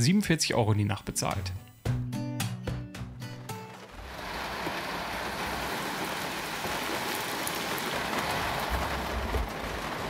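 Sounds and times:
rain on roof and windows: 0:03.1 - 0:10.0.

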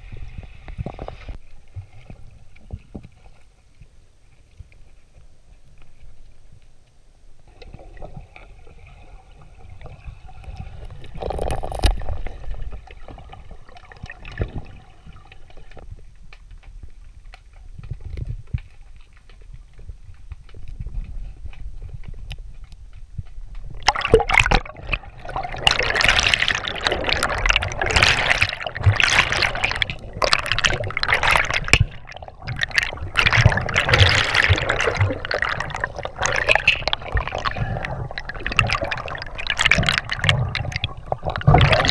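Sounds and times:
muffled underwater river rumble: 0:00.0 - 0:41.9
air bubbles churning underwater: 0:07.5 - 0:15.9, 0:23.6 - 0:41.9.

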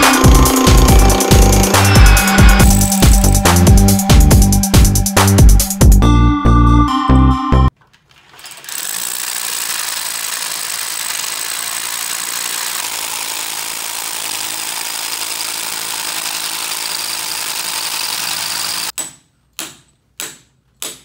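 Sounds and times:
rotary hammer drill boring: 0:00.0 - 0:03.6, 0:08.4 - 0:19.0.

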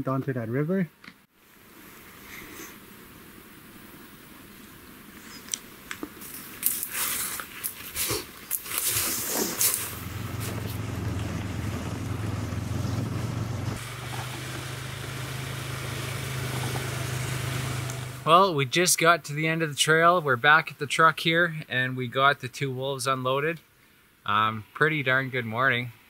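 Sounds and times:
brush snapping and rustling: 0:05.3 - 0:11.4
atv engine running: 0:09.6 - 0:18.3.

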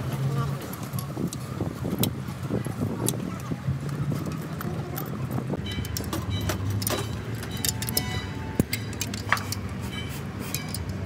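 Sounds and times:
sharp metallic clicks: 0:03.0 - 0:11.0
metal tools clinking: 0:04.1 - 0:11.0.

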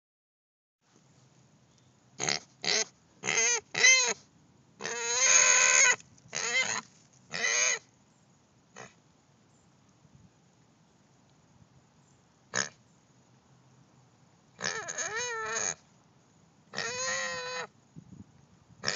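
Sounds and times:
pig squealing: 0:02.2 - 0:04.2, 0:04.8 - 0:07.8, 0:14.6 - 0:15.8, 0:16.8 - 0:17.7.

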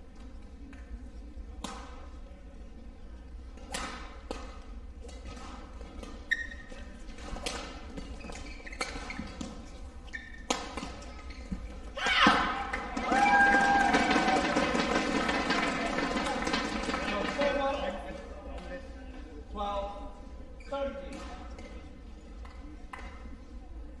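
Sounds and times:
badminton racket hitting shuttlecock: 0:03.6 - 0:11.3
shoe squeak on court: 0:05.4 - 0:11.9.

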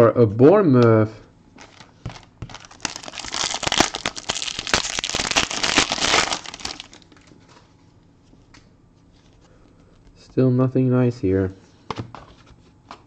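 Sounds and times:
foil wrapper tearing and crinkling: 0:01.6 - 0:07.3.

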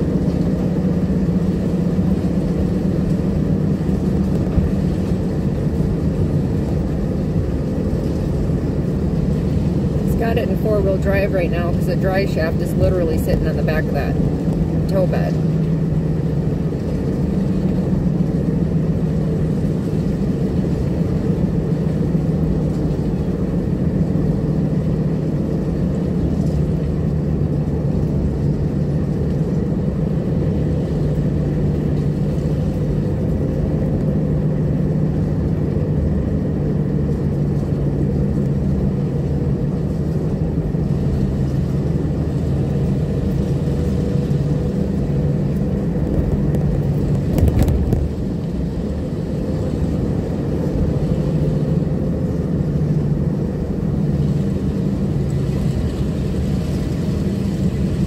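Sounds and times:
car engine and tyre drone: 0:00.0 - 0:11.0.

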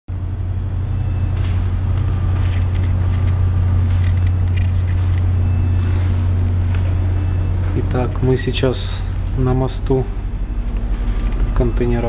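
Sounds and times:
ship machinery humming: 0:00.1 - 0:12.0
camera handling clicks and rustles: 0:02.4 - 0:05.3.

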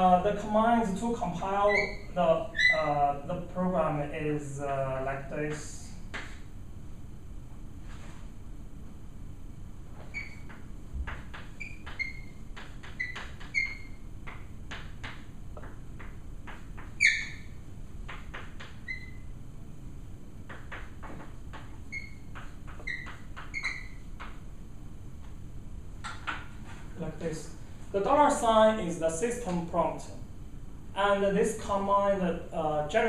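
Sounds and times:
high chalk squeaks: 0:01.4 - 0:02.9, 0:10.0 - 0:19.4, 0:20.5 - 0:24.4
chalk tapping and scraping: 0:10.0 - 0:17.4, 0:20.5 - 0:24.4.

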